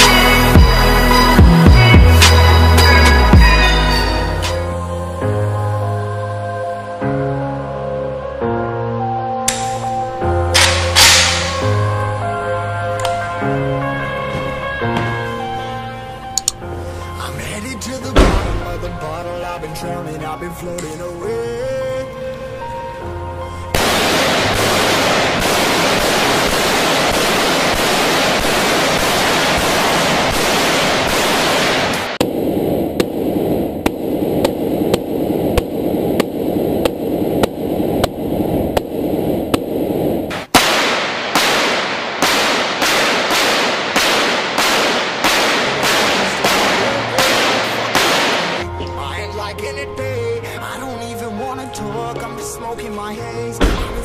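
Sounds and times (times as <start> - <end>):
automatic gunfire: 23.8 - 32.2, 40.5 - 48.6
single gunshots: 23.8 - 32.2, 40.3 - 48.6.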